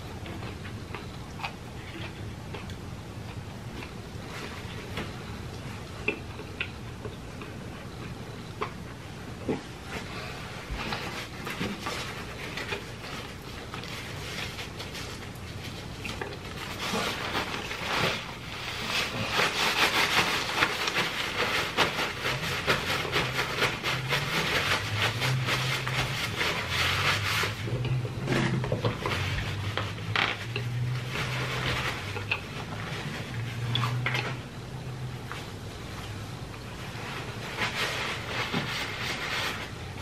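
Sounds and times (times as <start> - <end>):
paper napkin crinkling: 9.8 - 27.8, 28.6 - 34.4, 36.6 - 40.0.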